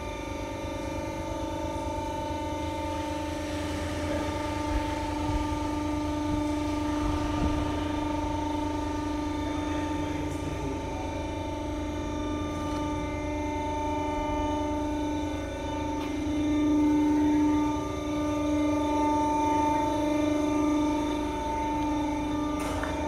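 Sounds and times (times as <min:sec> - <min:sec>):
lift drive electric hum: 0:00.0 - 0:23.0.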